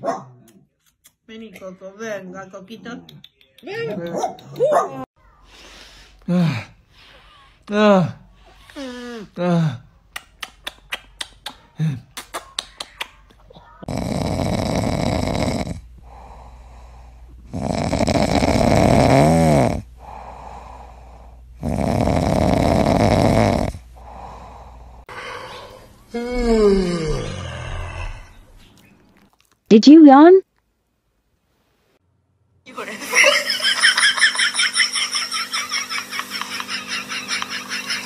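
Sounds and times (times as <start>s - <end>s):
kissing smacks: 10.1s - 13.4s
dog snoring: 13.8s - 28.4s.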